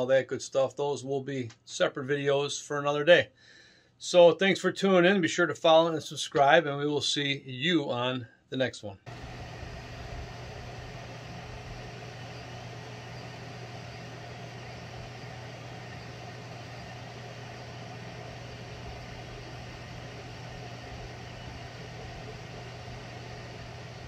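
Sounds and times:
laser engraver humming and whirring: 9.1s - 24.0s.

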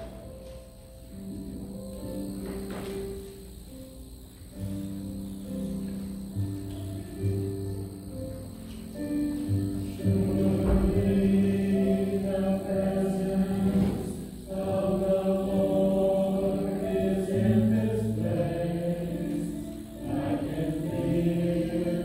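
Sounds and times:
slow music of long held chords: 0.0s - 22.0s.

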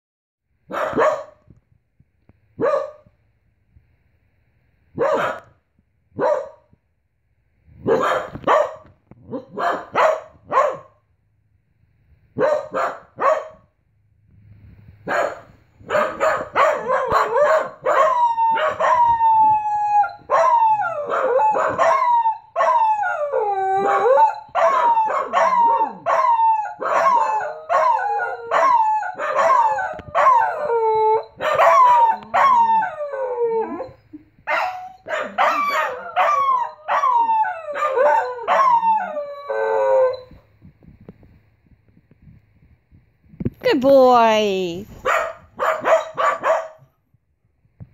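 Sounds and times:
dogs barking: 0.7s - 1.4s, 5.0s - 5.5s, 6.2s - 6.6s, 7.9s - 10.9s, 12.4s - 13.6s, 15.1s - 19.1s, 23.8s - 30.7s, 31.4s - 32.7s, 34.5s - 37.2s, 45.0s - 46.9s
dogs howling: 16.0s - 40.3s.

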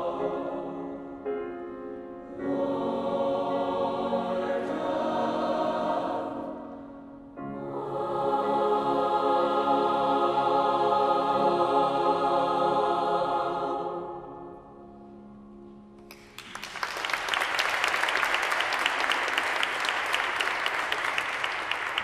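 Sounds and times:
choir holding a chord: 0.0s - 15.0s
audience applause: 16.1s - 22.0s.

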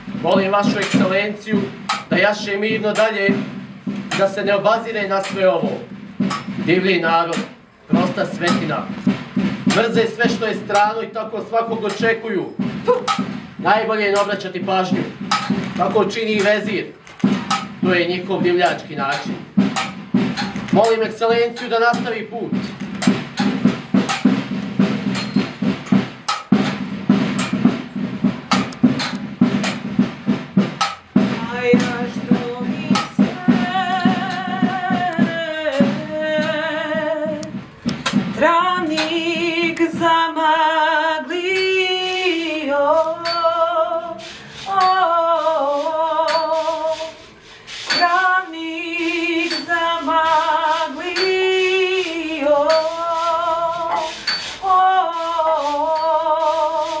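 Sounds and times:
fast drumming: 0.0s - 57.0s
person singing with vibrato: 31.3s - 57.0s.

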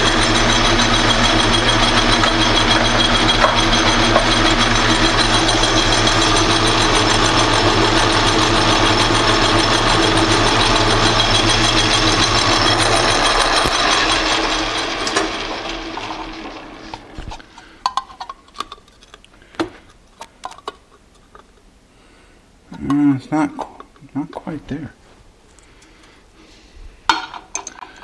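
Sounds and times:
metal lathe whirring: 0.0s - 17.6s.

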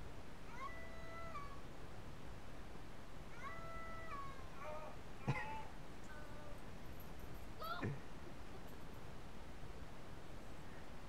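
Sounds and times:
cat meowing: 0.5s - 1.6s, 3.4s - 4.9s.

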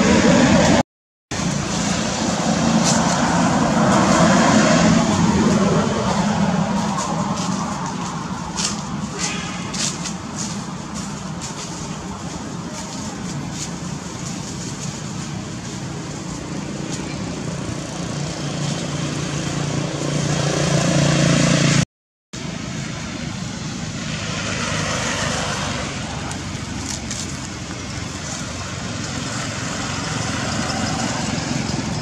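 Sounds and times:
steady rushing noise: 0.0s - 21.8s.

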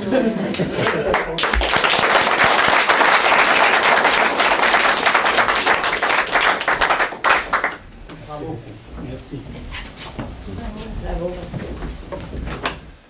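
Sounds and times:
audience applauding: 0.5s - 7.8s.

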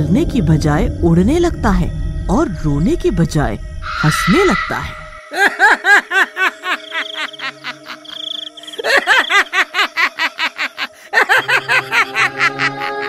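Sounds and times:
eerie music drone: 0.0s - 13.0s.

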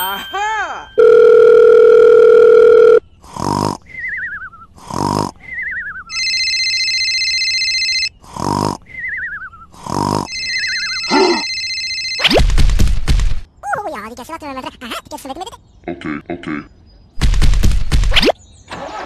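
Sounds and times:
electronic phone-like ringing: 1.0s - 3.0s, 6.1s - 8.1s, 10.3s - 12.4s
descending warbling whistles: 3.9s - 4.7s, 5.4s - 6.2s, 8.9s - 9.8s, 10.4s - 11.4s
comic vocal noises: 15.0s - 16.7s.

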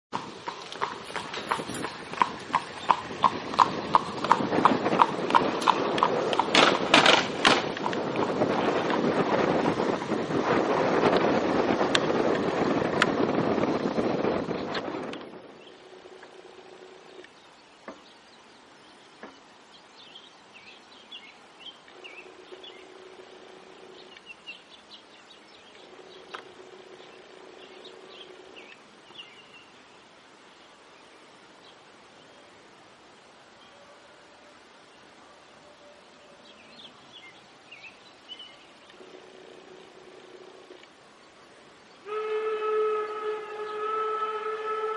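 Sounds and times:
wheels clattering over tracks: 0.1s - 15.4s
steel-rimmed wheels rumbling: 0.1s - 17.2s
horse hooves on asphalt: 0.1s - 18.1s
small birds chirping: 0.2s - 4.4s, 16.6s - 34.0s, 34.9s - 42.1s.

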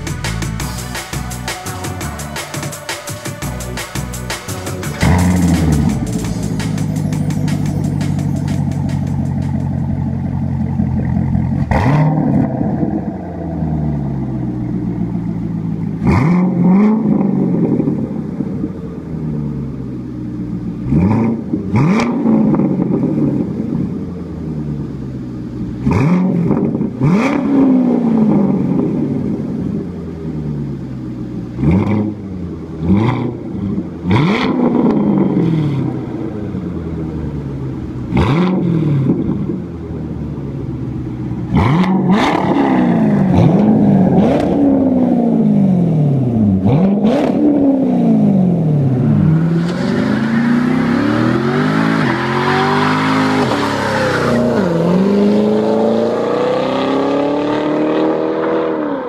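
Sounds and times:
spinning tyres hissing: 0.0s - 23.3s, 49.0s - 56.4s
car engine revving: 0.0s - 59.0s
exhaust cracks: 3.4s - 24.0s, 31.2s - 55.8s.

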